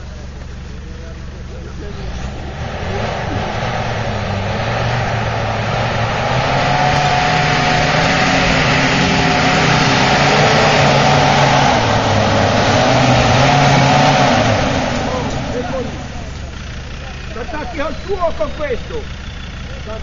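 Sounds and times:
off-road vehicle engine running: 0:00.0 - 0:20.0.

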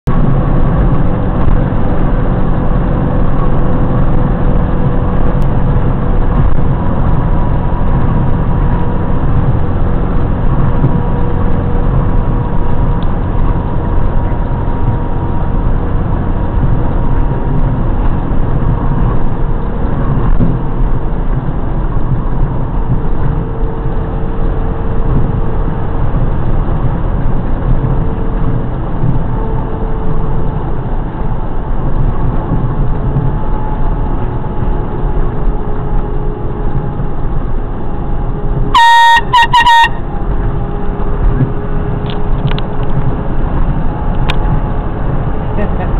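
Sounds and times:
truck engine and road noise: 0:00.0 - 0:45.9.

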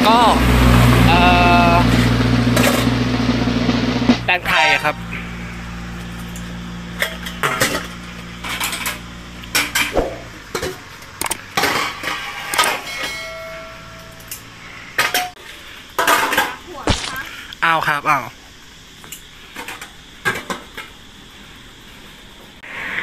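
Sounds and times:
metal scoop clinking on tubs: 0:11.8 - 0:14.5.

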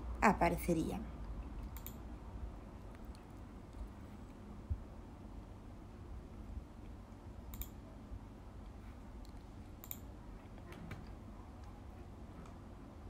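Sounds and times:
low steady hum: 0:00.0 - 0:13.0
computer mouse clicks: 0:01.6 - 0:02.0, 0:07.5 - 0:07.8, 0:09.2 - 0:11.8.

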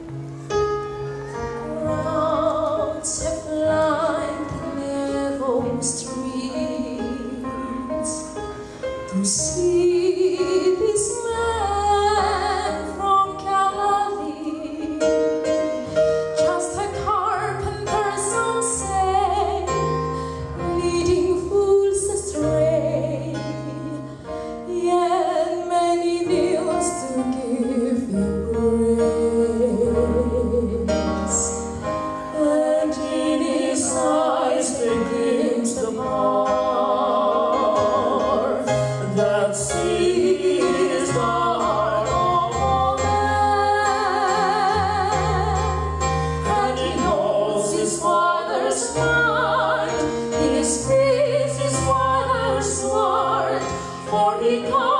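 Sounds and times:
keyboard and band accompaniment: 0:00.0 - 0:10.0
woman singing into a microphone: 0:09.1 - 0:15.1, 0:20.6 - 0:24.1, 0:47.8 - 0:54.9.

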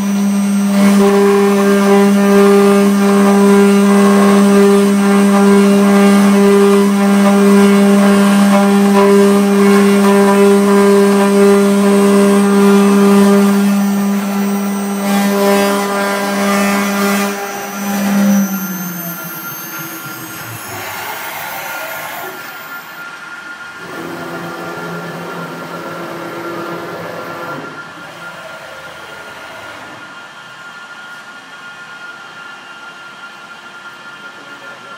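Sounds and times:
cutter engraving metal plate: 0:00.0 - 0:23.0
router spindle humming: 0:00.0 - 0:23.2.

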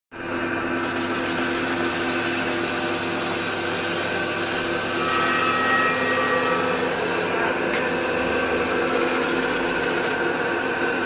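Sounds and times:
grinding machine motor hum: 0:00.2 - 0:11.0
high ringing note: 0:04.8 - 0:07.2.

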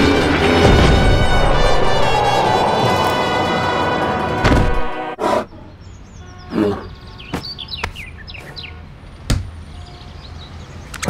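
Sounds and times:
thump: 0:04.4 - 0:04.9
birds chirping: 0:04.8 - 0:11.0.

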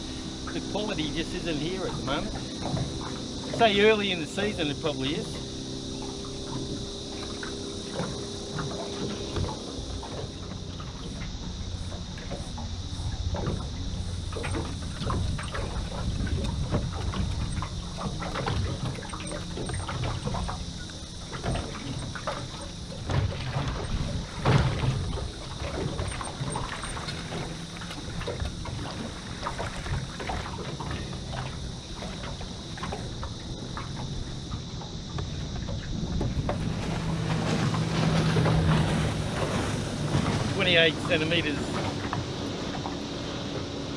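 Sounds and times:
faint high whine: 0:00.0 - 0:43.9
waves lapping against boat hull: 0:00.0 - 0:43.9
wind buffeting microphone: 0:12.8 - 0:19.0, 0:23.0 - 0:27.4, 0:31.8 - 0:43.9.

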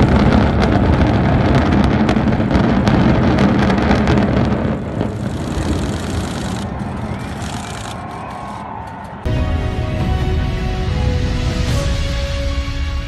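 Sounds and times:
building collapsing rumble: 0:00.0 - 0:08.3.

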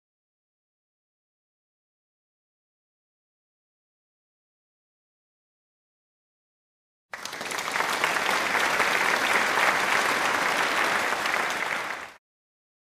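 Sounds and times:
applause: 0:07.1 - 0:12.2.

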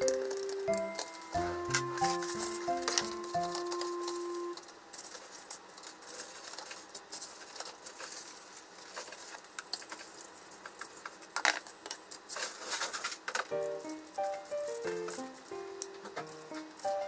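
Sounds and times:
aluminium foil crinkling: 0:00.0 - 0:17.0.

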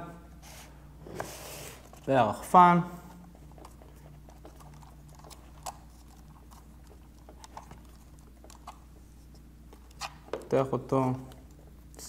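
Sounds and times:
faint steady low hum: 0:00.0 - 0:12.0.

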